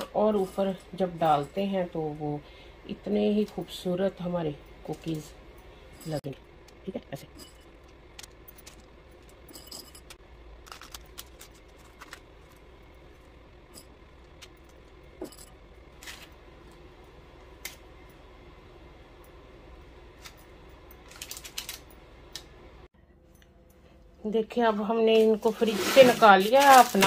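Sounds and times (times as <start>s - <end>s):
steady low hum: 0.0s - 25.6s.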